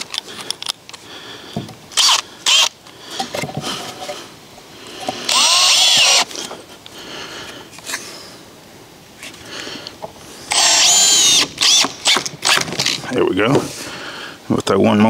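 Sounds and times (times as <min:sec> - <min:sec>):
cordless drill driving screws: 0:01.9 - 0:02.8, 0:05.1 - 0:06.4, 0:10.5 - 0:13.0.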